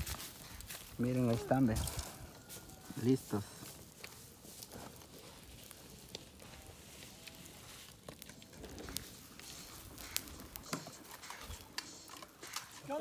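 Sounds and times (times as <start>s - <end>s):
light clicks and crackles: 3.5s - 13.0s.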